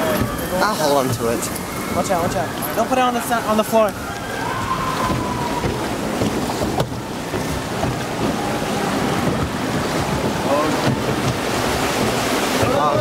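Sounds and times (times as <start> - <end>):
water rushing and sloshing in flume: 0.0 - 13.0
wind buffeting microphone: 0.0 - 13.0.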